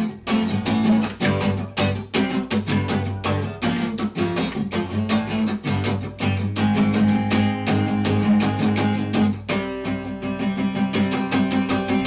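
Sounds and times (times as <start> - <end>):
quickly strummed guitar music: 0.0 - 12.0.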